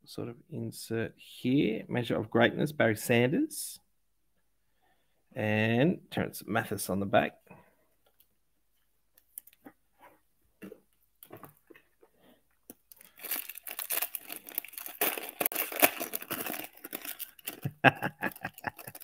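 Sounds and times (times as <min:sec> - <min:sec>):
foil wrapper tearing and crinkling: 0:12.7 - 0:19.0.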